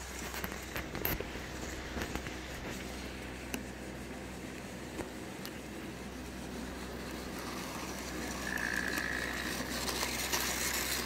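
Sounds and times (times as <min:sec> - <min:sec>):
high steady whine: 0:00.0 - 0:11.0
model train rattling on track: 0:06.6 - 0:11.0.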